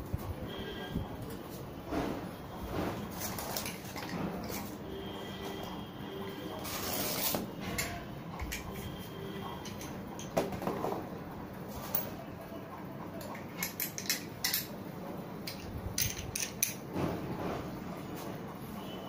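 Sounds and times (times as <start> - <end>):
metal parts clinking and clicking: 9.6 - 10.4, 13.2 - 14.7, 15.4 - 16.8.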